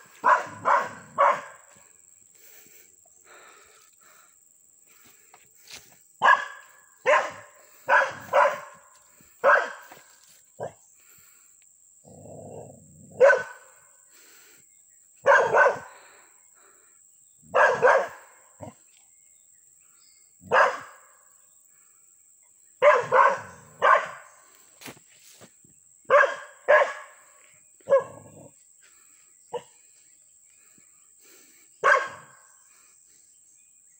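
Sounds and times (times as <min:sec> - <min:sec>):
small dog barking: 0:00.2 - 0:01.6, 0:06.2 - 0:10.0, 0:13.2 - 0:13.7, 0:15.2 - 0:16.0, 0:17.5 - 0:18.8, 0:20.4 - 0:21.0, 0:22.8 - 0:24.3, 0:26.1 - 0:27.2, 0:27.8 - 0:28.5, 0:31.8 - 0:32.4.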